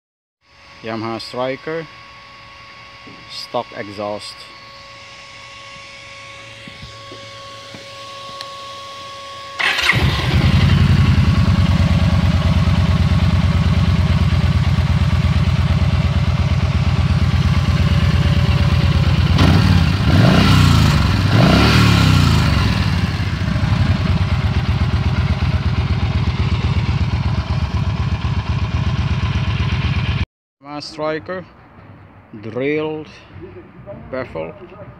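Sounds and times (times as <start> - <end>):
motorcycle engine idling: 9.6 - 30.2
motorcycle engine revving: 9.6 - 30.2
motorcycle engine starting: 9.6 - 30.2.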